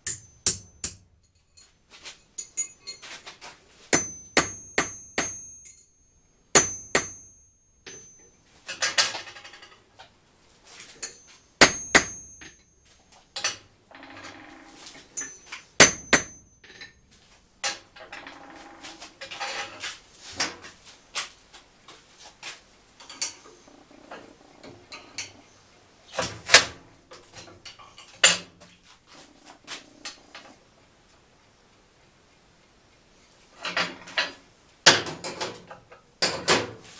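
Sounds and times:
metal clanks and clinks: 0.0 - 3.3, 4.0 - 6.0, 6.6 - 9.9, 11.0 - 18.5, 23.0 - 23.5
metal scraping and rattling: 17.7 - 20.8.

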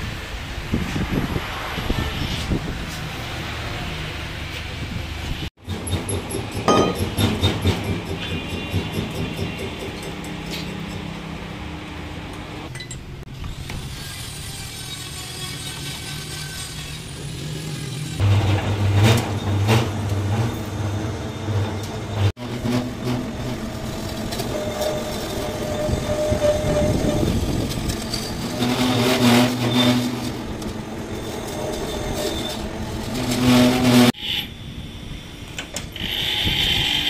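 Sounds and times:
lathe motor and gears running: 13.4 - 37.0
cutting tool squealing on steel: 13.5 - 18.2, 19.3 - 34.8.

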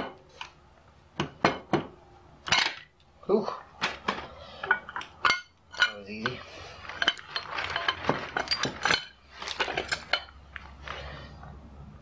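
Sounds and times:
metal engine parts clinking: 3.9 - 10.8.

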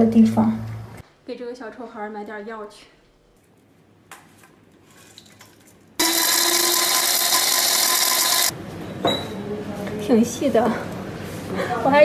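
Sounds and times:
electric herb grinder whirring: 6.0 - 8.5.

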